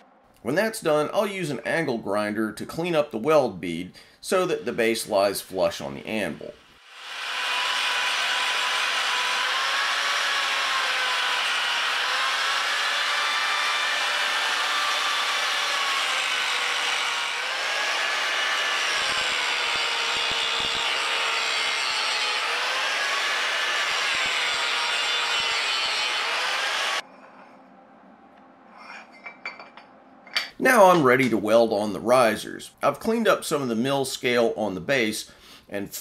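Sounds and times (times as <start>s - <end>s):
angle grinder grinding metal: 5.1s - 27.0s.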